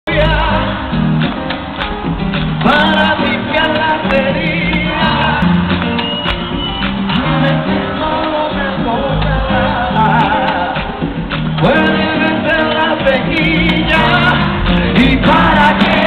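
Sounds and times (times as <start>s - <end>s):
man singing: 0.0s - 1.0s, 2.6s - 5.8s, 7.1s - 16.0s
live salsa band: 0.1s - 16.0s.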